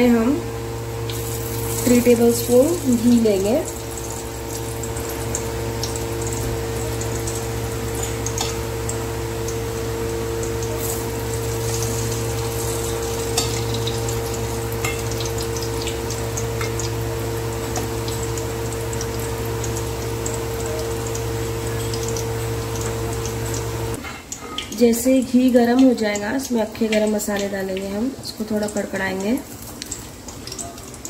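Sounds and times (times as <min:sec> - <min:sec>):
low hum: 0:00.0 - 0:24.0
ghee sizzling in a pot: 0:00.0 - 0:31.0.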